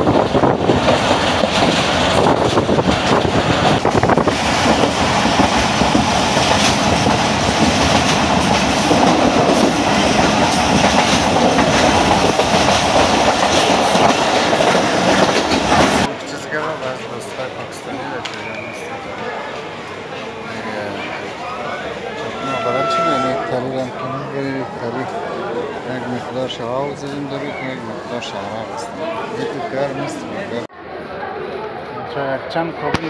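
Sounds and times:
train rumbling on rails: 0:00.0 - 0:20.4, 0:21.1 - 0:24.4.

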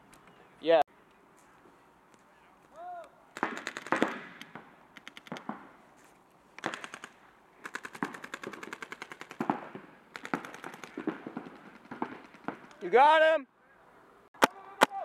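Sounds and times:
paintball markers firing: 0:03.4 - 0:05.7, 0:06.6 - 0:12.9.

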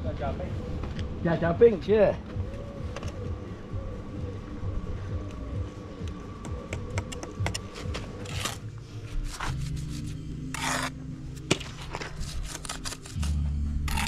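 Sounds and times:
trowel scraping mortar: 0:09.2 - 0:14.0.

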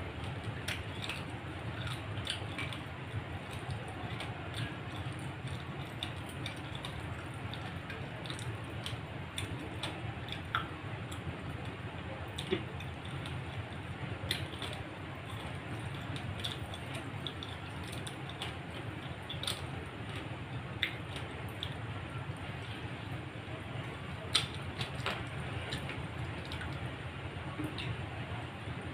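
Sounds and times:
steady low hum: 0:00.0 - 0:28.9
fingers squishing food: 0:00.1 - 0:28.9
chewing mouth sounds: 0:00.2 - 0:11.7, 0:12.3 - 0:21.8, 0:23.8 - 0:28.0.

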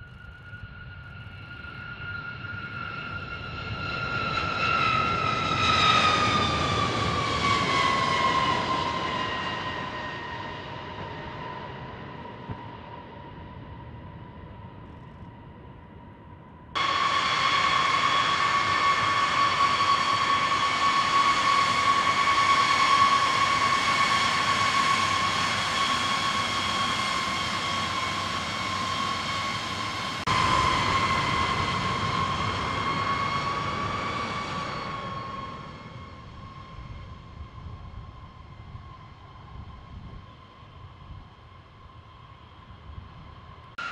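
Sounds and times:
jet engines whining: 0:00.6 - 0:14.8, 0:16.8 - 0:43.9.

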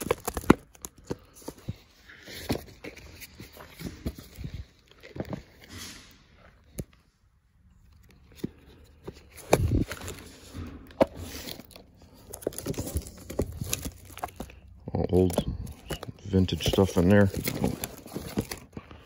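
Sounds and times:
plastic page sleeves crinkling: 0:00.0 - 0:06.0, 0:07.8 - 0:19.0.

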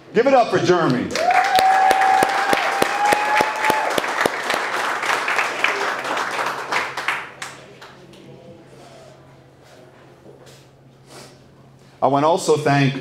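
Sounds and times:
audience applauding: 0:00.9 - 0:08.0
long held whoop: 0:01.2 - 0:04.2.

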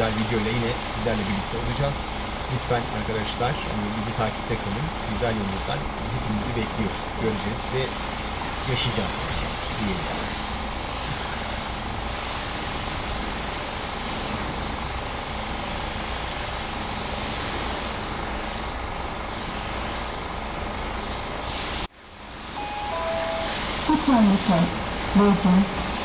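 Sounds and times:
pressure washer spraying water: 0:00.0 - 0:21.9.

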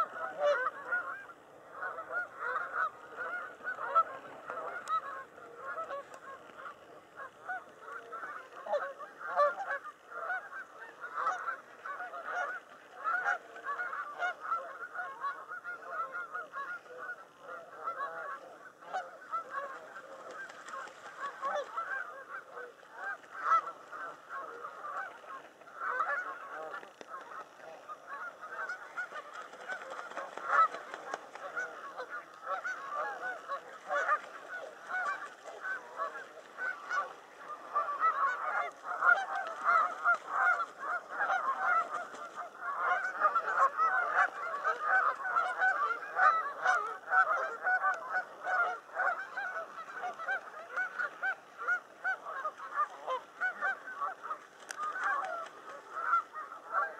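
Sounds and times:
geese honking: 0:00.0 - 0:56.9.

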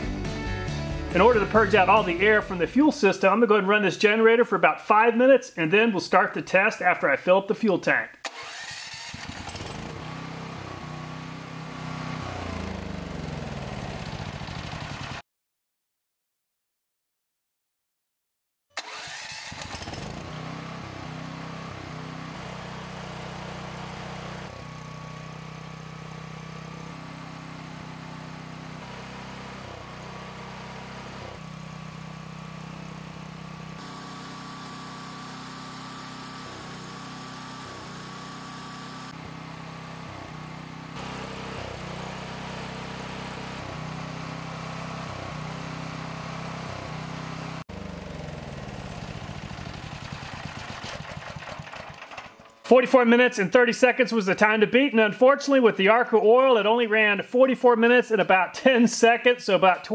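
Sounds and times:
generator engine running: 0:00.0 - 0:03.4, 0:08.2 - 0:15.2, 0:18.8 - 0:52.9.

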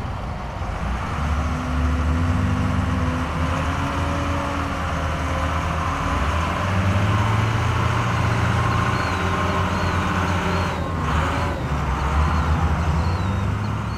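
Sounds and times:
diesel engines droning: 0:00.0 - 0:13.9.

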